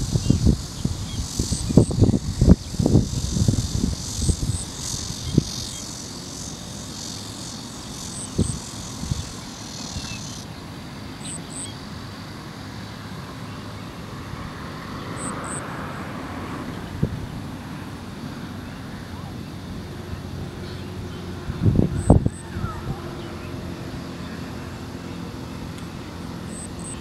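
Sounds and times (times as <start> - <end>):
high buzzing: 0.0 - 12.8.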